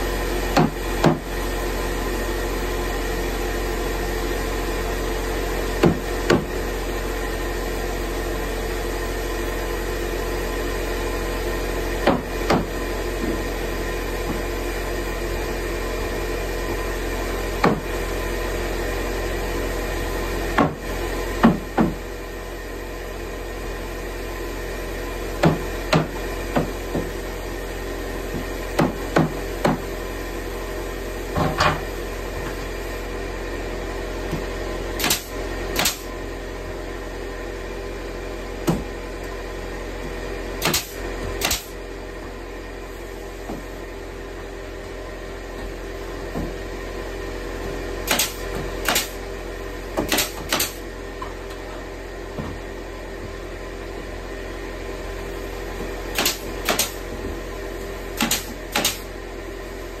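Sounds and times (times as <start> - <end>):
steady machine hum: 0.0 - 60.0
nail gun snaps: 35.0 - 36.1, 40.6 - 41.7, 48.1 - 49.2, 50.1 - 50.8, 56.2 - 57.0, 58.2 - 59.1.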